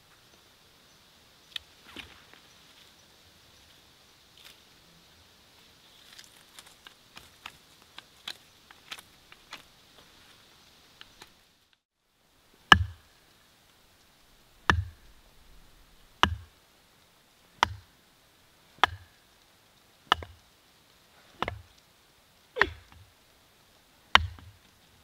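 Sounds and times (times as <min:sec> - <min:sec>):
hatchet chopping into wood: 0:12.7 - 0:13.0, 0:14.6 - 0:15.1, 0:16.2 - 0:16.5, 0:17.6 - 0:17.9, 0:18.8 - 0:19.2, 0:20.1 - 0:20.4, 0:21.4 - 0:21.7, 0:22.6 - 0:23.0, 0:24.1 - 0:24.5.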